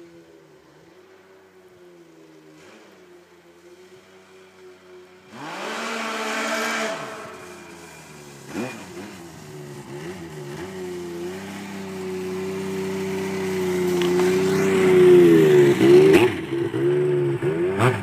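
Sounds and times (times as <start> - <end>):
snowmobile engine revving: 2.6 - 18.0.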